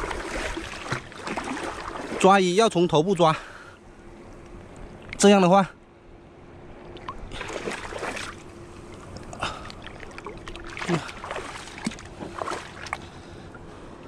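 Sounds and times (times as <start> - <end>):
water gurgles: 0.0 - 2.8, 6.9 - 13.0
water sloshing and splashing: 0.0 - 5.5, 6.6 - 14.0.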